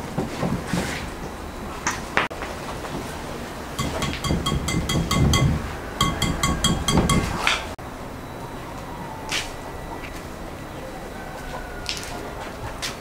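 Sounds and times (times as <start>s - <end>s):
whisk clinking against glass bowl: 3.8s - 7.4s.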